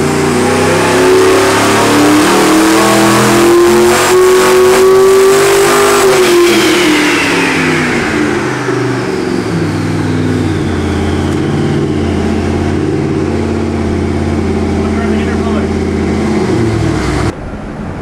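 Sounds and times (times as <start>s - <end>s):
engine revs falling then steady: 0.0s - 18.0s
high whine sliding down: 4.1s - 18.0s.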